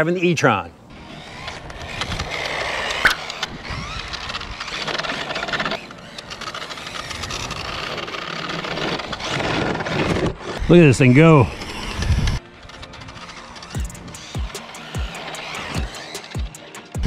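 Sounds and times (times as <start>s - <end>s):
tyre noise on concrete: 0.9s - 10.8s
rc car electric motor whir: 0.9s - 17.0s.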